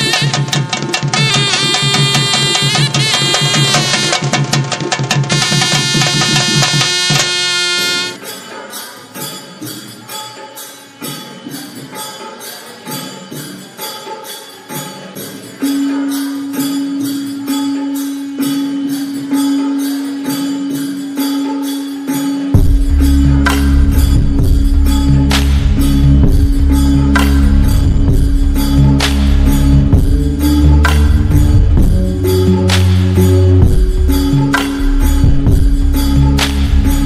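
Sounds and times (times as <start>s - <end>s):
jingling percussion beat: 0.0s - 37.0s
deep bass: 22.6s - 37.0s.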